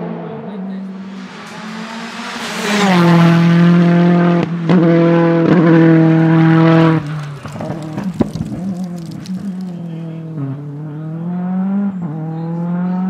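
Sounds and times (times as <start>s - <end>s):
race car engine running hard: 0.0s - 8.2s
backfire cracks: 6.8s - 10.2s.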